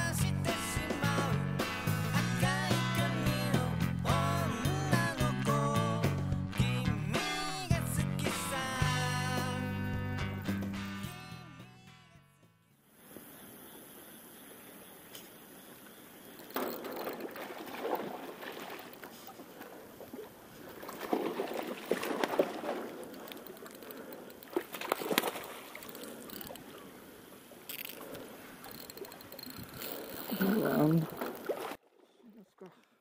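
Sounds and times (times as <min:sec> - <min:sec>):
fish splashing at water surface: 0:16.5 - 0:26.6.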